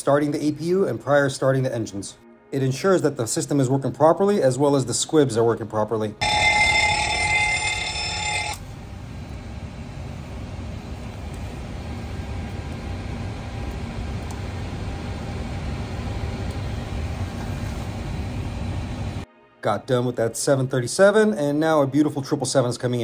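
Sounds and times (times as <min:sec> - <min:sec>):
fire warning bell ringing: 0:06.2 - 0:11.2.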